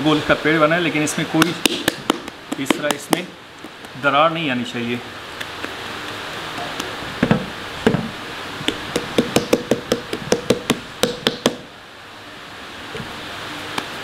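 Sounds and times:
dough knocking on metal tray: 0:01.4 - 0:03.3, 0:08.7 - 0:11.7.

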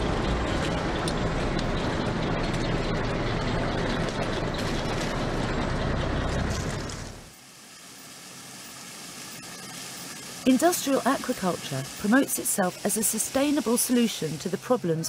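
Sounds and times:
screw auger rumbling and crackling: 0:00.2 - 0:07.3.

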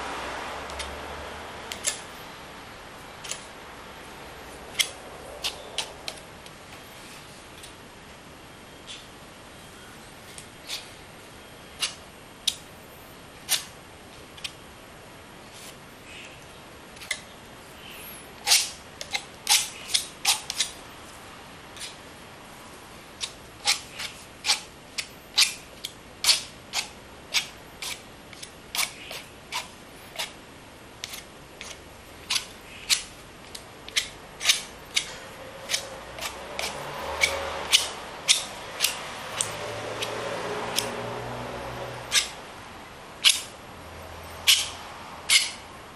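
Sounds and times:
knife scraping across canvas: 0:04.7 - 0:06.2, 0:33.9 - 0:41.0.

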